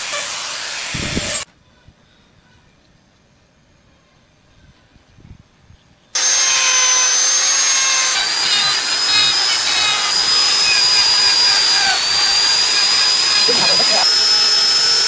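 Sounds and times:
rotary tool grinding wood: 6.2 - 15.0.

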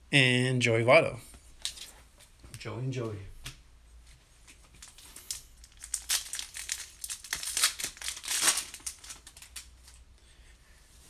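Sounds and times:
foil wrapper crinkling: 4.8 - 10.0.

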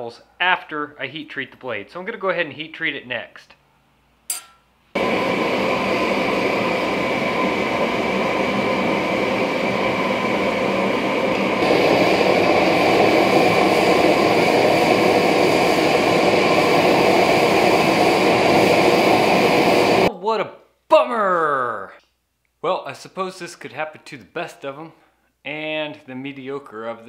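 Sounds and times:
gas forge burner rushing: 5.0 - 20.1.

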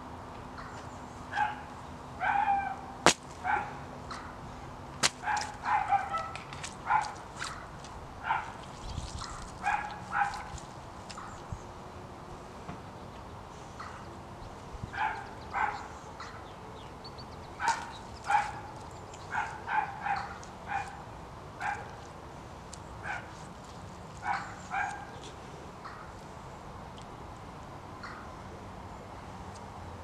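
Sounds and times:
dog barking: 1.3 - 2.8, 3.4 - 3.8, 5.2 - 7.6, 8.2 - 8.6, 9.3 - 10.6, 15.0 - 15.9, 17.6 - 18.7, 19.3 - 21.0, 21.6 - 22.0, 23.0 - 23.4, 24.2 - 25.2.

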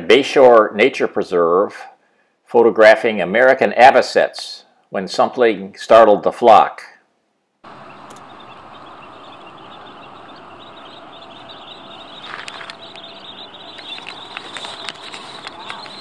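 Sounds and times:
shorebirds calling in flight: 7.7 - 16.0.

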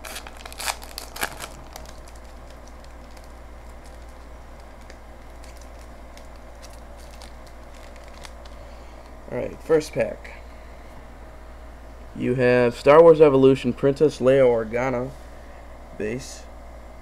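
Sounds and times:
foil wrapper crinkling: 0.0 - 9.1
steady low hum: 0.0 - 17.0.

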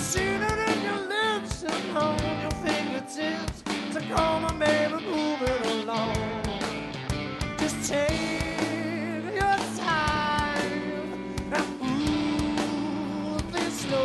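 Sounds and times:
man singing: 0.0 - 6.8, 7.6 - 14.0
live rock band playing: 0.0 - 14.0.

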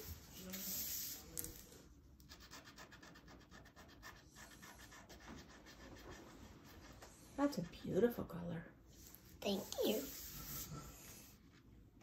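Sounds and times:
markers scribbling on paper: 2.2 - 7.1.

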